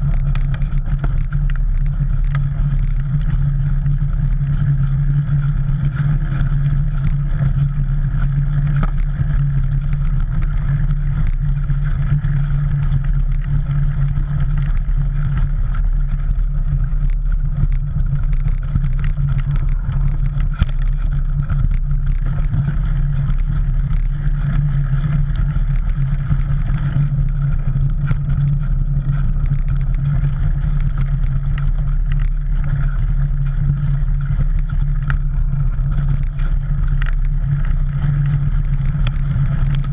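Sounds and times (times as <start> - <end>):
bike tyres rumbling on dirt: 0.0 - 39.9
gravel and bike rattles: 0.0 - 39.9
wind on microphone: 0.0 - 39.9.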